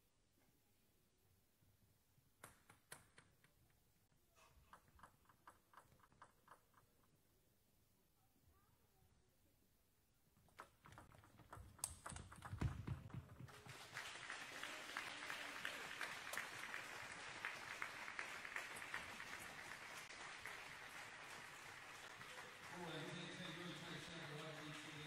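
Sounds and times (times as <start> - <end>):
table tennis ball clicking: 10.5 - 13.4
spectators applauding: 12.9 - 25.0.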